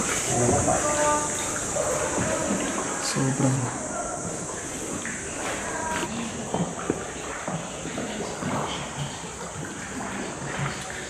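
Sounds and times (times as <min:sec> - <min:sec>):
steady high hiss: 0:00.0 - 0:06.1.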